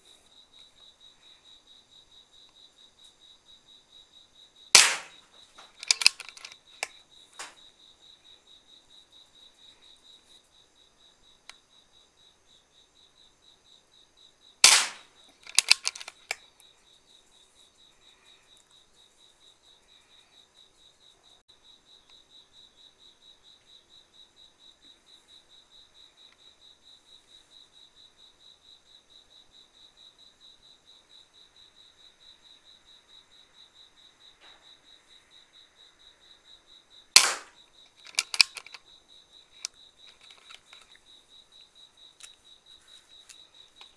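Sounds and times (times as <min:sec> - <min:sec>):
crickets chirping: 0:00.0 - 0:43.9
air rifle shot crack: 0:04.8 - 0:05.2, 0:14.6 - 0:16.0, 0:37.2 - 0:37.6
quick mechanical clicks: 0:04.8 - 0:07.6, 0:14.6 - 0:16.4, 0:37.2 - 0:38.8, 0:39.6 - 0:40.9.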